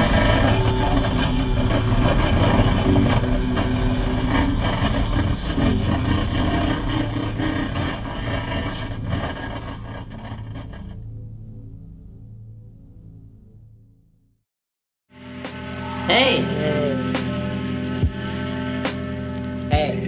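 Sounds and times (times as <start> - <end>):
rumbling clattering noise: 0.0 - 11.1
steady low hum: 0.0 - 13.7, 15.2 - 20.0.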